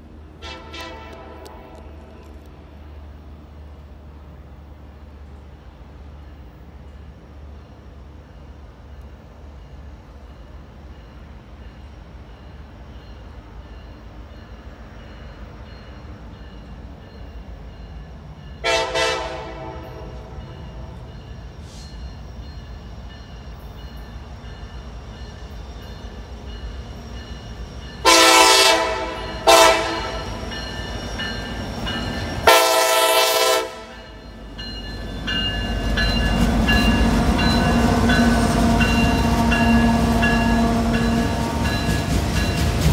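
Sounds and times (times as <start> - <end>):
train rumbling: 0.0 - 42.9
locomotive horn blasts: 0.4 - 2.0, 18.6 - 20.5, 28.0 - 30.4, 32.4 - 34.0, 38.3 - 41.6
crossing bell ticking: 29.2 - 32.5, 33.9 - 42.8.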